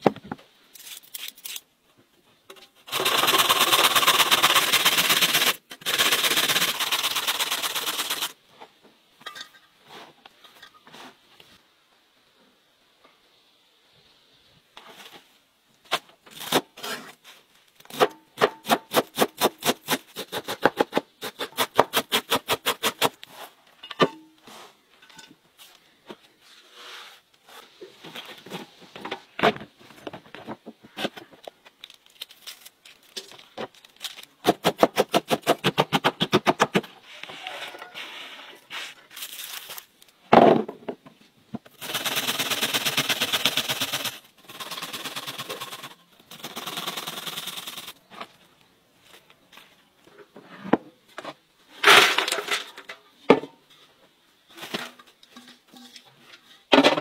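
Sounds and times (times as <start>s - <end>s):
cabbage grated on metal grater: 2.9s - 8.3s.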